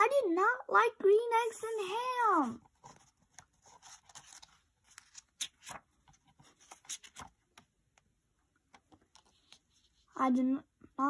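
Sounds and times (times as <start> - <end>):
paper pages rustling: 2.4 - 7.7, 8.7 - 10.1.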